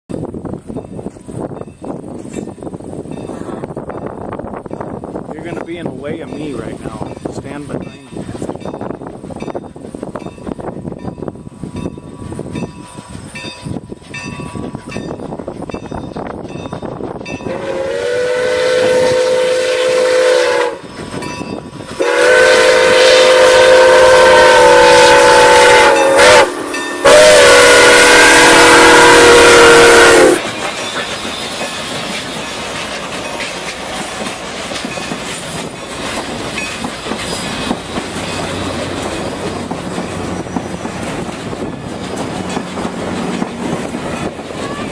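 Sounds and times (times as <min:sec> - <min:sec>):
train rumbling past on rails: 0:00.1 - 0:44.9
steam whistle chord blasts: 0:17.4 - 0:20.9, 0:22.0 - 0:30.4.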